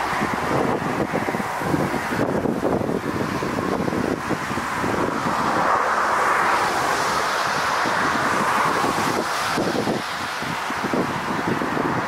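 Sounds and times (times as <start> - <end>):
jet engines rushing: 0.0 - 12.0
wind buffeting microphone: 0.0 - 12.0.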